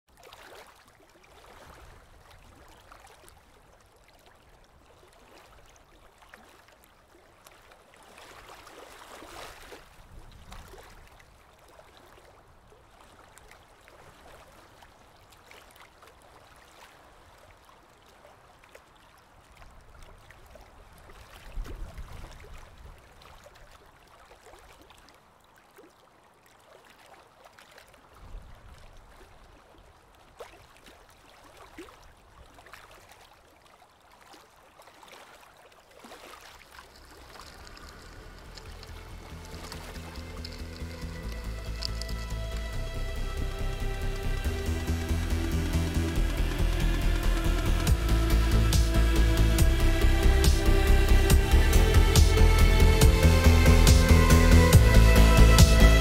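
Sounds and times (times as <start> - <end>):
water trickling and lapping: 0.1 - 49.7
low rumbles: 36.7 - 56.0.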